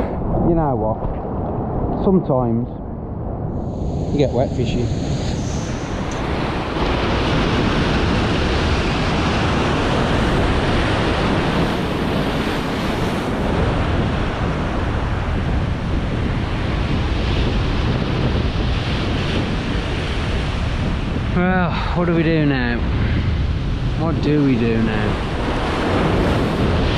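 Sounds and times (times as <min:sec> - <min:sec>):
heavy surf breaking: 0:00.0 - 0:26.9
wind blowing on microphone: 0:00.0 - 0:26.9.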